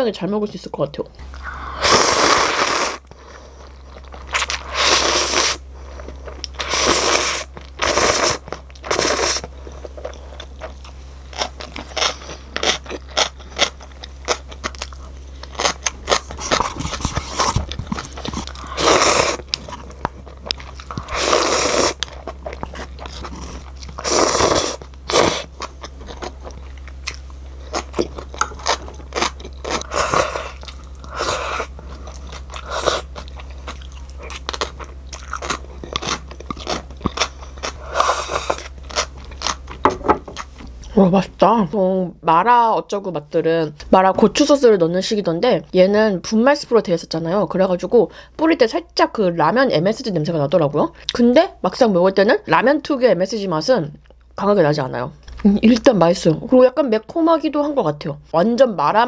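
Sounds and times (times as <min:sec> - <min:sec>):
noodle slurping: 0:01.4 - 0:03.1, 0:04.4 - 0:05.6, 0:06.5 - 0:09.5, 0:16.3 - 0:19.6, 0:20.8 - 0:22.1, 0:23.0 - 0:25.5
chewing: 0:07.5 - 0:39.8.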